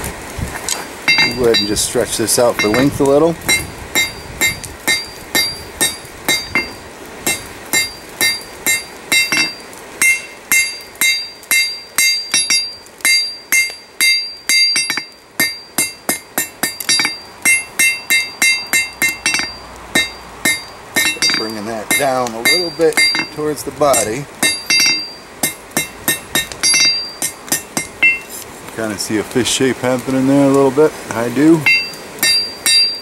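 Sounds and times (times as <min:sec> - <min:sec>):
hammer striking anvil: 0:01.1 - 0:01.8, 0:02.6 - 0:02.9, 0:03.5 - 0:28.3, 0:31.6 - 0:33.0.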